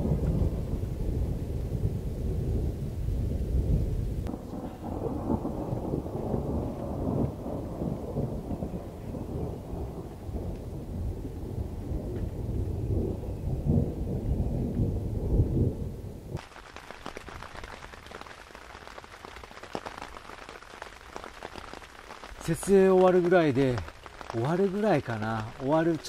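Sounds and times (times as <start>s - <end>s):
thunder rumbling: 0.0s - 16.4s, 19.9s - 26.0s
rain pattering on tent fabric: 4.2s - 12.7s, 16.4s - 26.0s.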